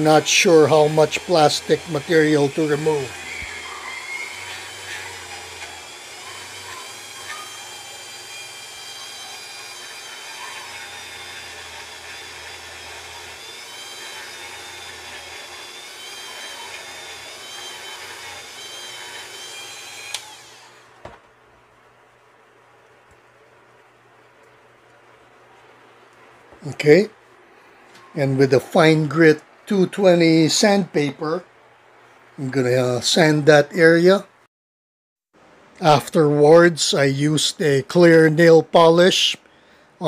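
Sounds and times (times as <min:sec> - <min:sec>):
rotary tool grinding plastic: 0:00.0 - 0:21.0.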